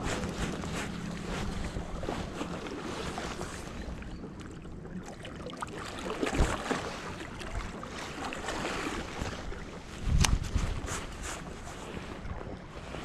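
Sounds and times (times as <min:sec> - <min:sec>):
sea water washing: 0:00.0 - 0:13.0
wind buffeting microphone: 0:09.1 - 0:13.0.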